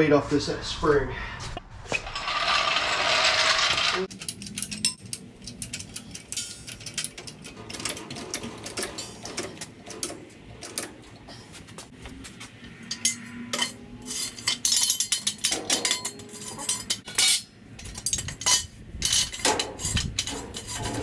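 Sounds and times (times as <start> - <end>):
floor jack scraping on concrete: 2.0 - 4.1, 19.1 - 21.0.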